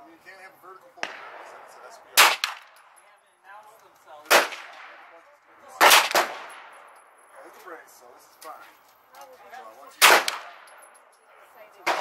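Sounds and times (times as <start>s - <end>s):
gunshots: 1.0s - 2.8s, 4.3s - 7.0s, 10.0s - 10.8s.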